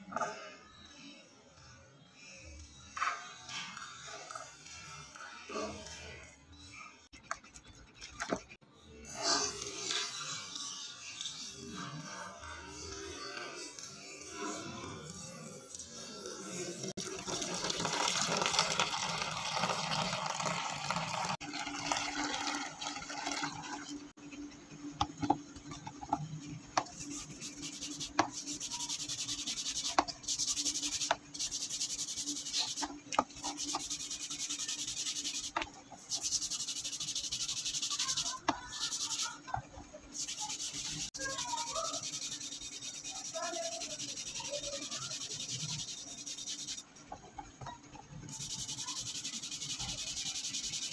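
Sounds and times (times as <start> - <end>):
water pouring into plastic tub: 17.0 - 24.0
stiff brush scrubbing metal blade: 26.8 - 39.4, 40.2 - 46.8.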